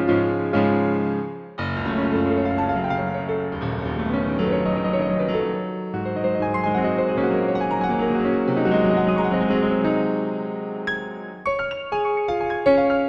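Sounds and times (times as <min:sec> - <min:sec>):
slow solo piano piece: 0:00.0 - 0:13.0.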